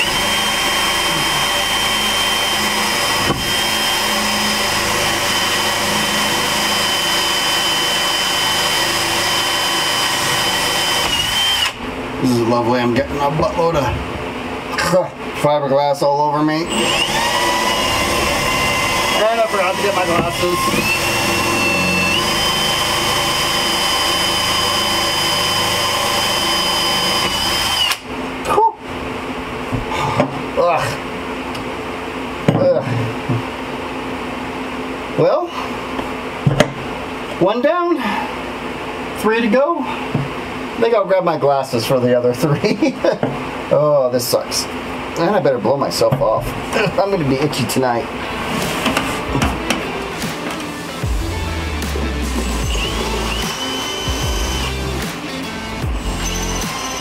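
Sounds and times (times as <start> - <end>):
cordless drill whining: 0.0 - 11.8, 16.6 - 28.0, 52.2 - 57.0.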